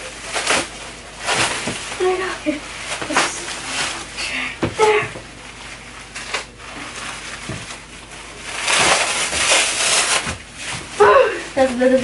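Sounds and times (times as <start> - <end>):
plastic cling wrap crinkling: 0.0 - 12.0.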